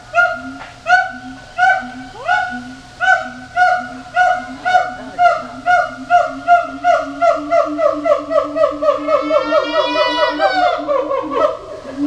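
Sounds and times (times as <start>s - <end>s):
low pulsing tone: 0.0s - 9.2s.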